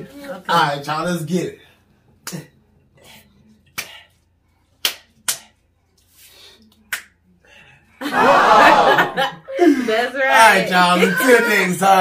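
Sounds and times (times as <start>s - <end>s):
hands slapping and clapping: 2.2s - 2.5s, 3.7s - 4.2s, 4.8s - 7.2s.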